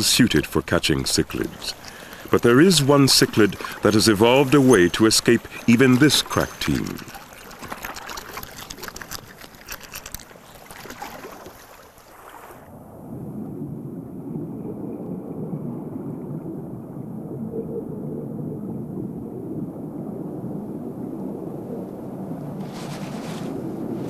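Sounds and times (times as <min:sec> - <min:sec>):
water splashing hiss: 0:00.0 - 0:12.7
muffled rush of churning water: 0:00.0 - 0:24.0.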